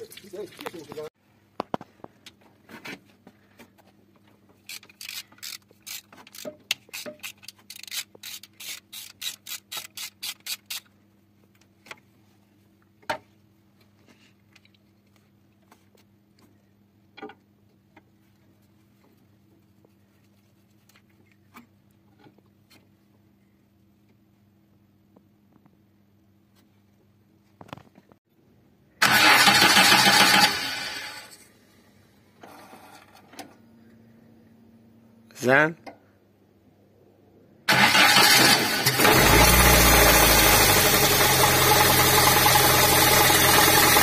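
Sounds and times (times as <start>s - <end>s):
socket ratchet clicking: 4.6s - 10.9s.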